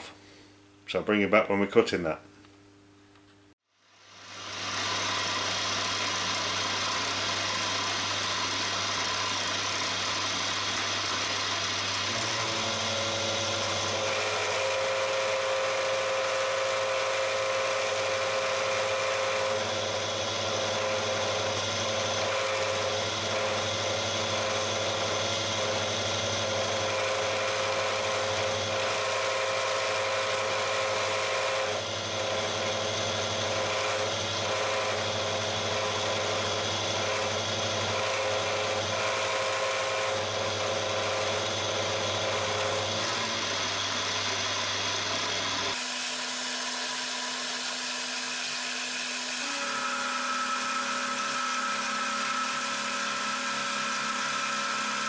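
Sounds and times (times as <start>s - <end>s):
milling machine motor hum: 3.9s - 55.0s
high cutting tone: 45.7s - 55.0s.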